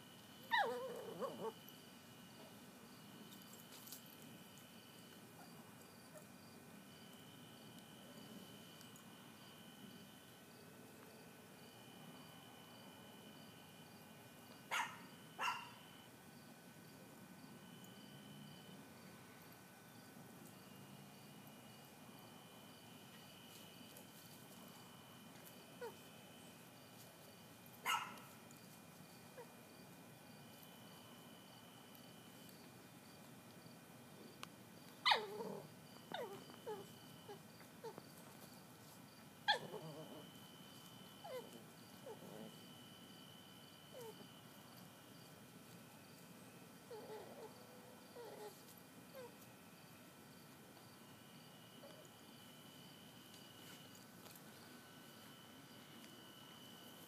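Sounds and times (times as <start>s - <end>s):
insects droning: 0.0s - 57.0s
dog whimpering: 0.5s - 1.6s, 35.0s - 38.0s, 39.5s - 40.3s, 41.2s - 42.5s, 46.9s - 47.6s, 48.2s - 48.6s
dog yipping: 0.5s - 1.6s, 14.7s - 15.8s, 27.8s - 28.3s, 35.0s - 38.0s, 39.5s - 40.1s, 41.2s - 42.2s.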